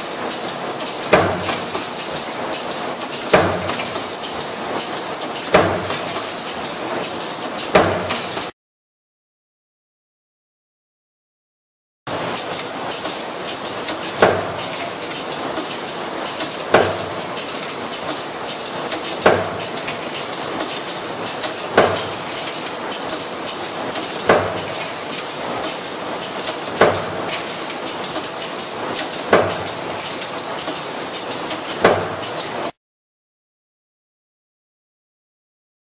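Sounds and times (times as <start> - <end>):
machinery clatter and hiss: 0.0 - 8.5, 12.1 - 32.8
stamping press metallic hits: 1.1 - 1.9, 3.2 - 4.1, 5.4 - 6.4, 7.6 - 8.5, 14.1 - 14.8, 16.4 - 17.2, 21.4 - 22.4, 24.1 - 25.0, 26.7 - 27.5, 29.2 - 29.8, 31.7 - 32.4.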